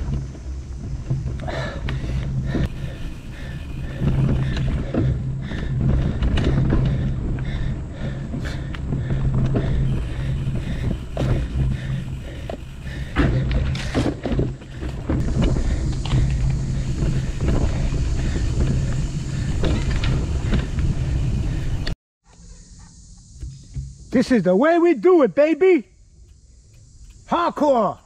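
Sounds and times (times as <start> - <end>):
bike knocking and rattling: 0.0 - 22.0
bike tyres rumbling on dirt: 0.0 - 22.0
wind on microphone: 14.8 - 21.9.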